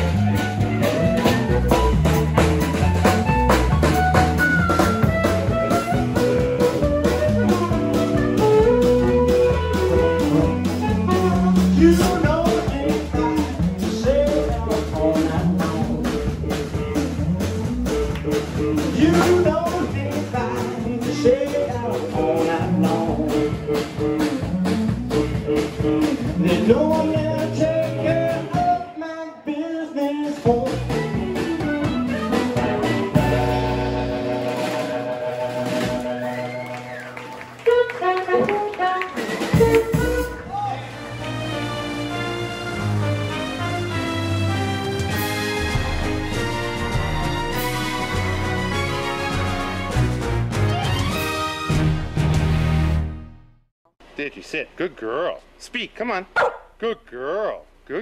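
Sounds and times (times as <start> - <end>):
electric guitar and bass: 0.0 - 28.7, 30.4 - 53.4
drum kit beat: 0.0 - 28.9, 30.2 - 40.8, 43.5 - 52.6
man singing: 10.2 - 17.2, 17.8 - 33.3.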